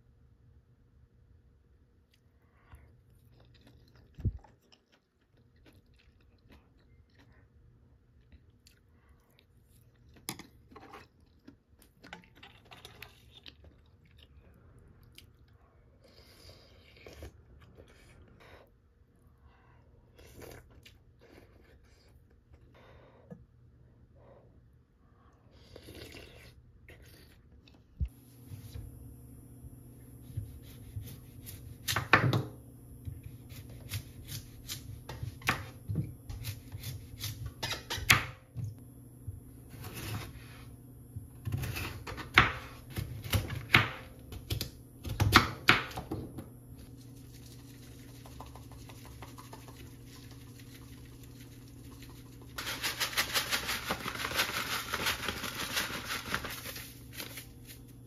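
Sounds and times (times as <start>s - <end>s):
salt pouring from bag: 49.4s - 57.4s.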